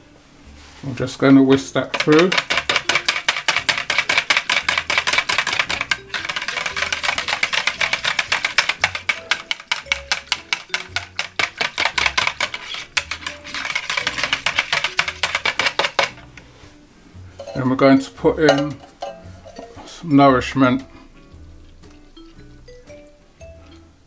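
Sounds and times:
whisk clicking against plastic jug: 1.8 - 16.2.

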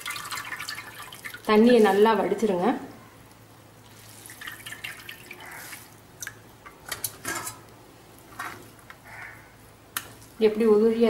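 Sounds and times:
water dripping and trickling: 0.0 - 2.0, 3.8 - 6.5.

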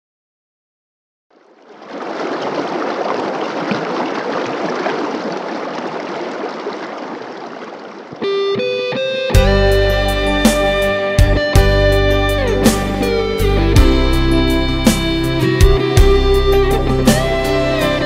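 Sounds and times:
river water rushing over stones: 1.6 - 8.3
guitar music: 8.2 - 18.0.

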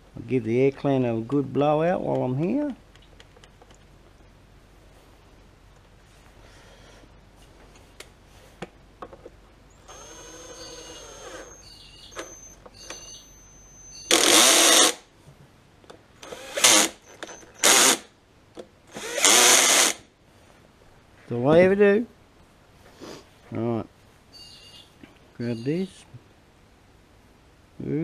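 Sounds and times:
cordless drill whirring: 9.9 - 12.5, 14.1 - 15.0, 16.2 - 18.0, 18.9 - 20.0.

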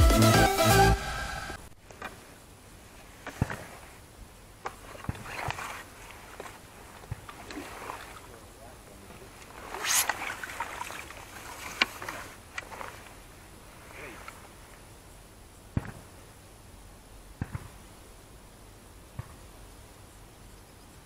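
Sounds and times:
brief rushing noise: 0.3 - 1.7
fishing pole clicks and knocks: 9.4 - 13.1.

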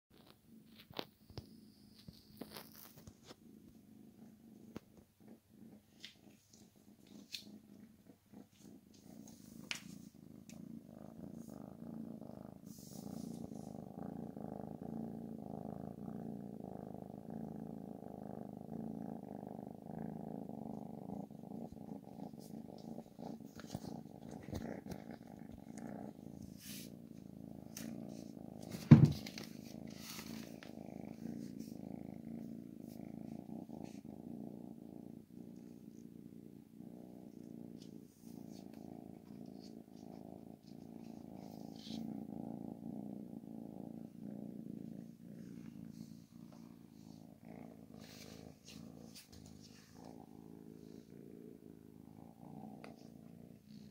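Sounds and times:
kitten purring: 0.0 - 53.9
sharp thump: 28.8 - 29.3.

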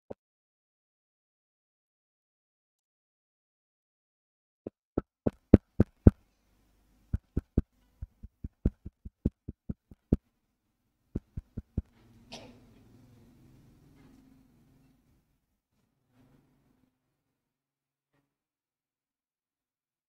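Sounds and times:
quick sharp taps: 5.0 - 6.2, 7.1 - 10.2, 11.2 - 11.9.

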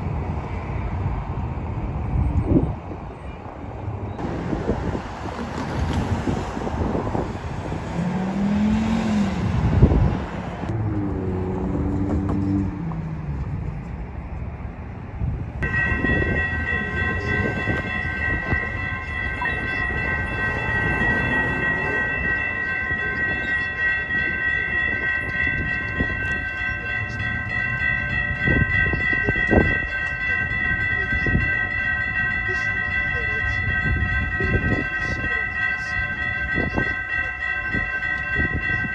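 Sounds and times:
car passing: 3.7 - 28.8
railroad crossing bells ringing: 15.6 - 38.9.

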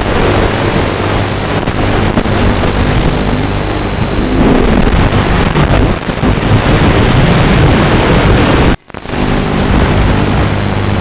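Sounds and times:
low motor hum: 0.1 - 8.0.

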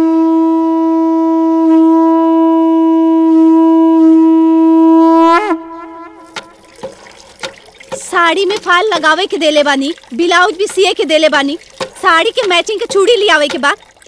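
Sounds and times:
conch shell blown: 0.0 - 6.7.

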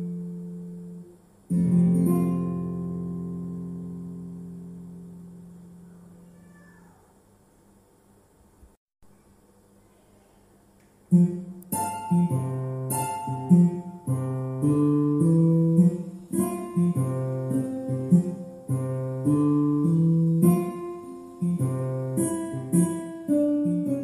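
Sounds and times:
plucked acoustic guitar tune: 0.0 - 5.8, 11.1 - 24.0.

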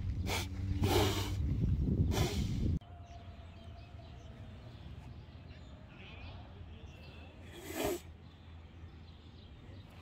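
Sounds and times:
wind buffeting microphone: 0.0 - 2.8
quiet outdoor background: 0.0 - 10.0.

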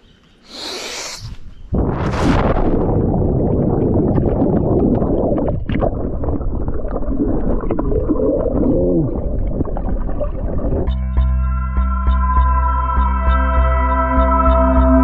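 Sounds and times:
warbling gurgle: 1.7 - 10.9
underwater air bubbles gurgling: 1.8 - 10.9.

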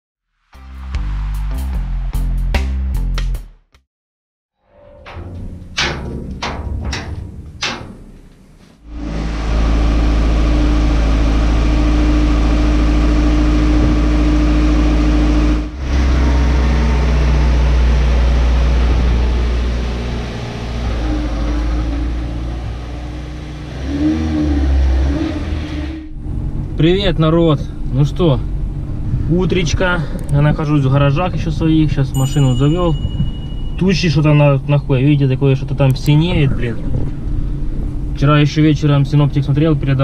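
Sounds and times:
sharp knocks: 5.0 - 8.5
car engine starting and running: 5.0 - 40.0.

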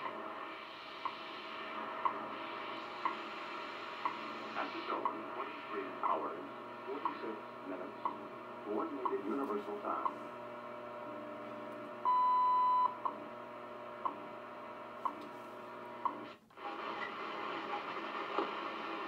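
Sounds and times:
radio static hiss: 0.0 - 11.6, 15.0 - 19.0
long radio tone: 3.7 - 10.3.

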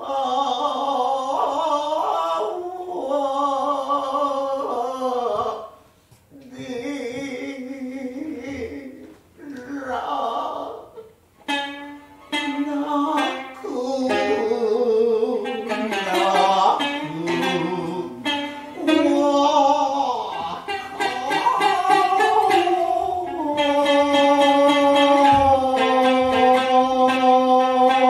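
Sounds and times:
shamisen sharp plucks: 11.4 - 28.0
man chanting wavering lines: 12.4 - 28.0.

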